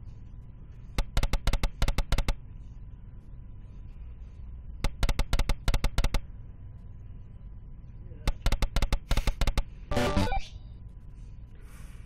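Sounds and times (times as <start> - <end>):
slot machine reel clicks: 4.9 - 6.2, 8.3 - 10.5.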